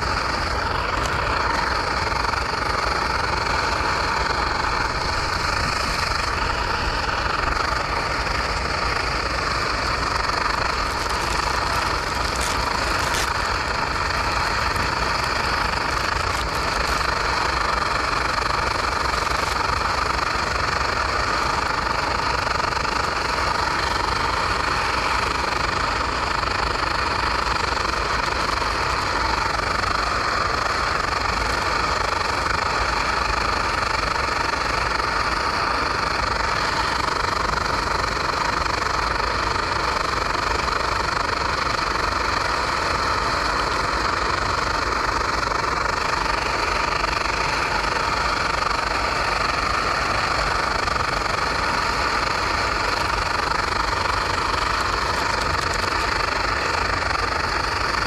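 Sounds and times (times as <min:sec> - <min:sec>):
gas stove burner rushing: 0:00.0 - 0:58.0.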